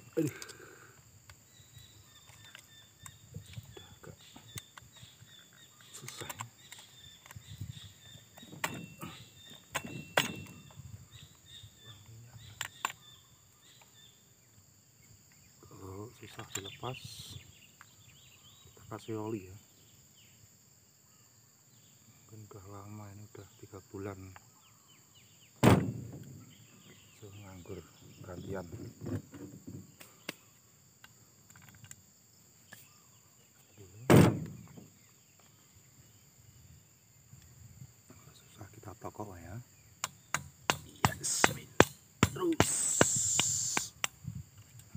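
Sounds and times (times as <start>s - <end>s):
birds chirping faintly: 0.0s - 44.9s
insects droning: 0.0s - 44.9s
small clicks of hand tools: 2.2s - 3.8s, 5.8s - 7.4s, 30.0s - 30.4s, 31.0s - 32.0s
loud thump: 9.7s - 10.7s, 25.6s - 26.6s, 34.1s - 34.9s.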